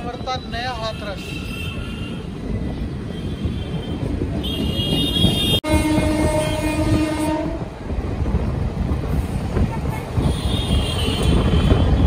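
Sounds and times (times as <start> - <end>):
train wheels rumbling on rails: 0.8 - 12.0
higher horn tone: 5.2 - 7.6
deep train horn blasts: 5.2 - 7.7.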